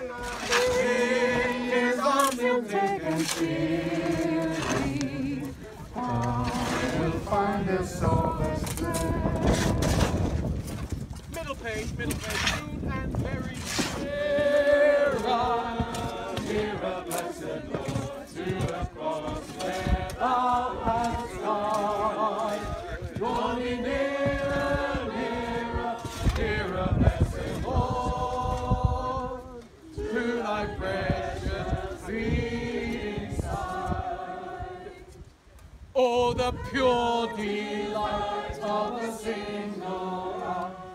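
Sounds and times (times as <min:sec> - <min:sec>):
group singing a hymn: 0:00.0 - 0:10.6, 0:13.7 - 0:40.9.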